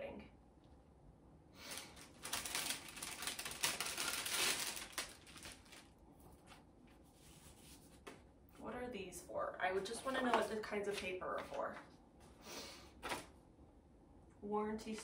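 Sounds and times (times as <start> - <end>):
paper rustling and crinkling: 1.7 - 8.2, 10.0 - 11.9, 13.0 - 13.3.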